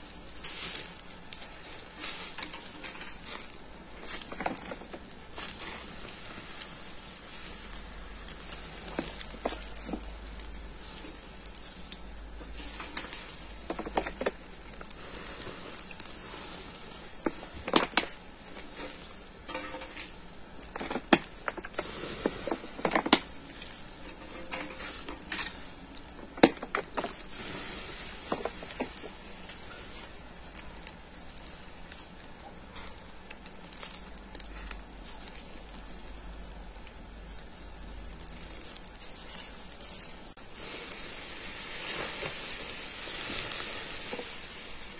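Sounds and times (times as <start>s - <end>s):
meat sizzling over charcoal: 0.0s - 44.9s
sharp pops and clicks: 26.0s - 27.2s.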